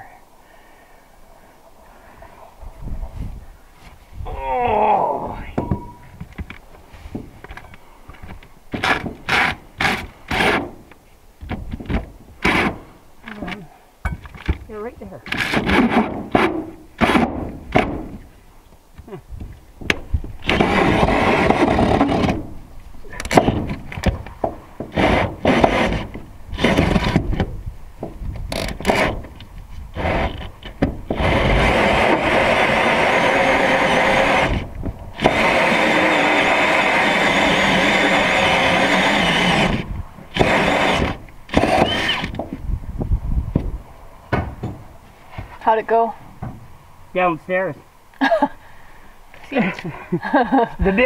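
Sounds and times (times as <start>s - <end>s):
power drill boring wood: 20.4s - 22.4s, 24.9s - 27.3s, 30.0s - 30.5s, 31.1s - 42.4s.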